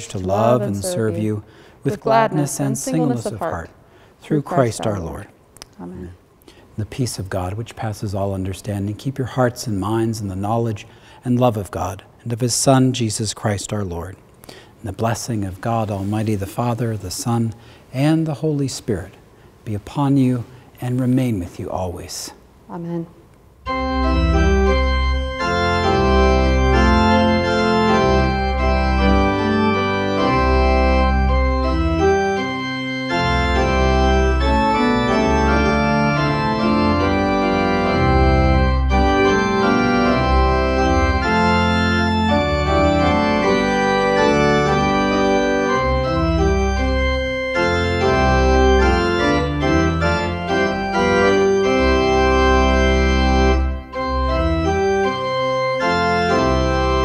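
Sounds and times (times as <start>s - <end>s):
church organ chords: 0.0s - 5.3s, 23.6s - 57.0s.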